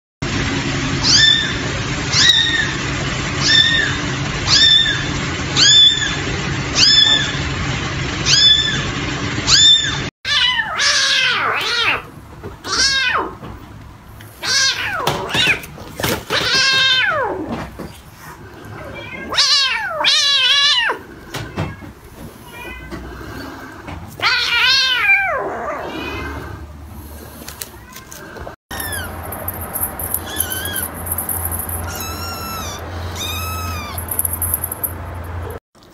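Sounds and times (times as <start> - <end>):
kittens mewing: 28.7 - 34.7.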